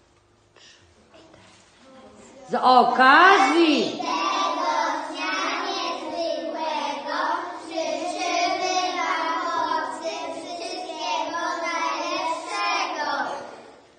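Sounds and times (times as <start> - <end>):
girls singing together: 4.0 - 13.8.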